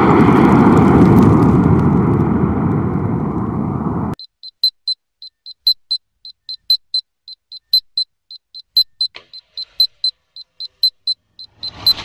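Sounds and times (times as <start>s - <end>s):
high-pitched electronic beeps: 4.2s - 12.0s.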